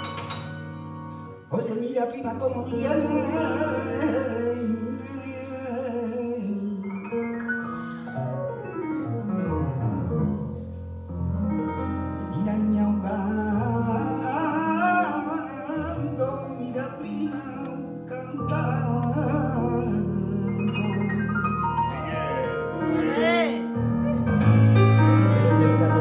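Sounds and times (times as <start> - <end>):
piano: 0.0 - 26.0.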